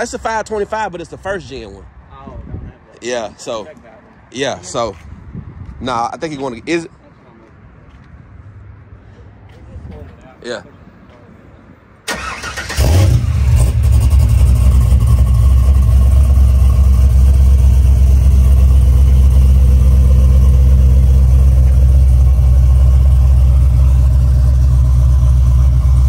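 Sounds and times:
engine idling deep rumble: 12.8 - 26.0.

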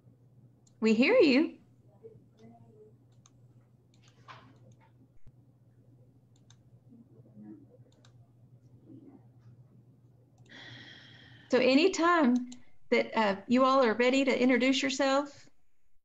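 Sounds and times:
steady low hum: 0.0 - 16.0
soft clicks: 3.1 - 5.3, 6.3 - 6.6, 7.9 - 8.2.

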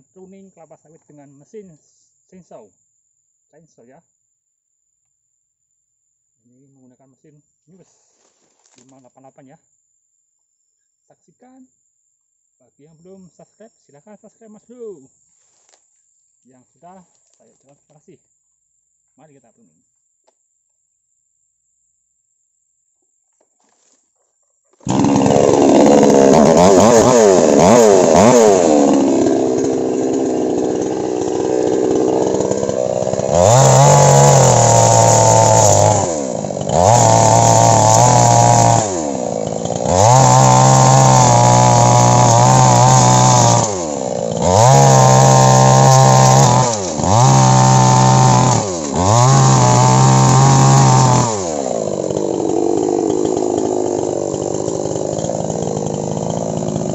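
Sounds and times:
chainsaw revving: 24.8 - 56.9.

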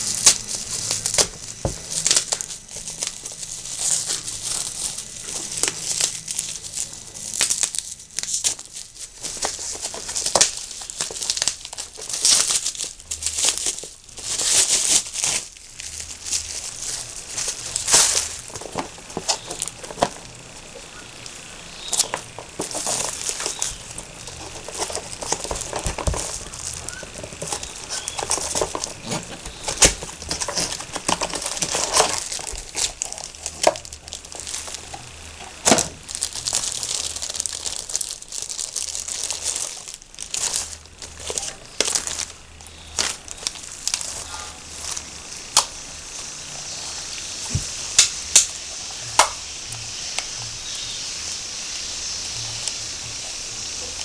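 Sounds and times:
plastic packaging crinkling: 0.0 - 54.0
cardboard box being handled: 22.0 - 34.9.

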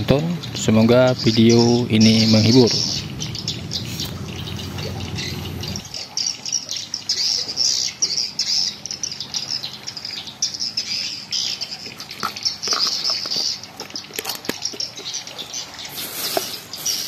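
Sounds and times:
low steady hum: 0.0 - 6.1
small birds chirping: 0.0 - 17.0.

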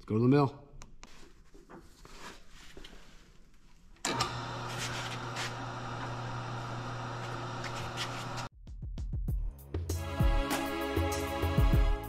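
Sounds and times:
faint handling sounds: 0.8 - 4.0
milling machine motor humming: 4.1 - 8.5.

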